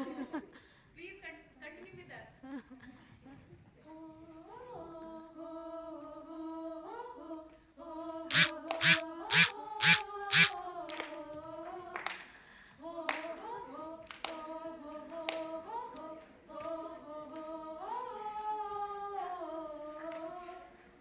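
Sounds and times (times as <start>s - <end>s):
women singing unaccompanied: 3.8s - 20.8s
hands clapping: 9.8s - 11.2s, 11.9s - 12.3s, 13.1s - 13.3s, 14.0s - 14.4s, 15.2s - 16.8s.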